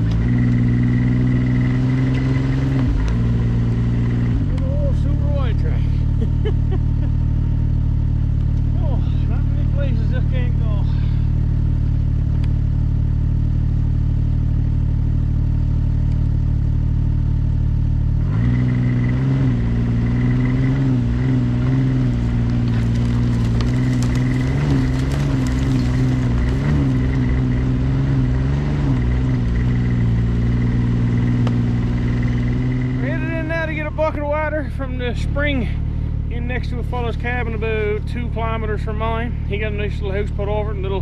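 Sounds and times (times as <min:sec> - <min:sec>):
snowmobile engine revving: 0:18.2 - 0:35.7
clatter: 0:19.9 - 0:33.1.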